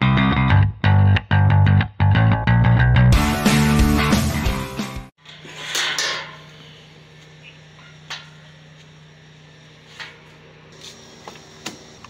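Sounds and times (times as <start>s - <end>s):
guitar intro music: 0.0s - 5.1s
steady low hum: 5.2s - 12.0s.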